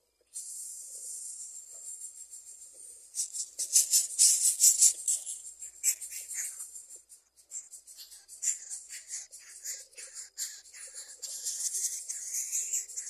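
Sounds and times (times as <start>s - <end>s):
nestling hissing: 0.4s - 1.7s
raspy begging calls: 3.2s - 6.8s, 7.5s - 13.0s.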